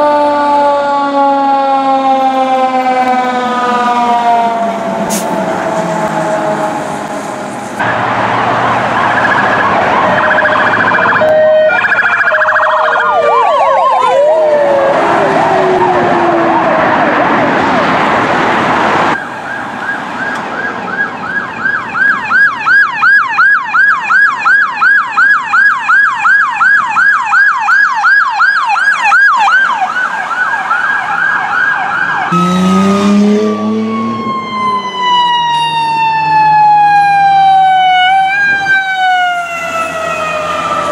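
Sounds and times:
siren tones winding down: 0.0s - 18.0s, 19.1s - 40.9s
fire engine siren: 0.0s - 40.9s
police siren yelp: 0.0s - 40.9s
low horn blast: 32.3s - 34.3s.

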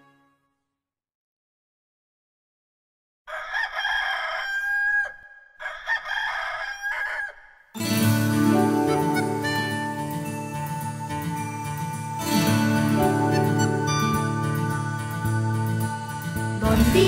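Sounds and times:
rooster crowing: 3.3s - 7.6s.

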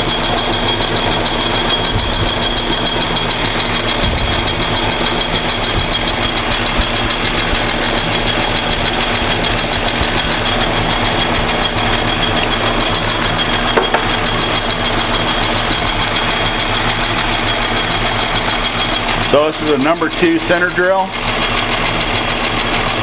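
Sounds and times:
high whine from drive: 0.0s - 23.0s
metal lathe running: 0.0s - 23.0s.

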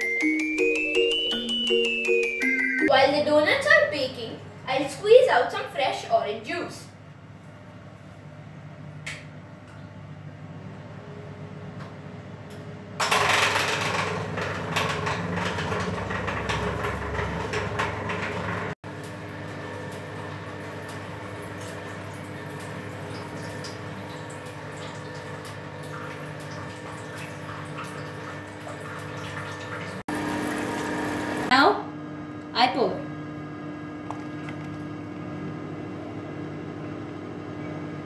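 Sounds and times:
juicer motor humming: 12.5s - 38.0s.

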